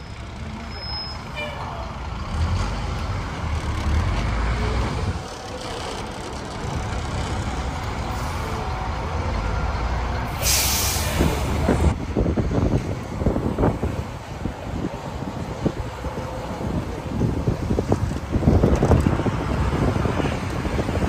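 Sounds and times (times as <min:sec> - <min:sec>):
bus engine rumbling: 0:00.0 - 0:21.0
air brakes hiss: 0:10.3 - 0:11.4.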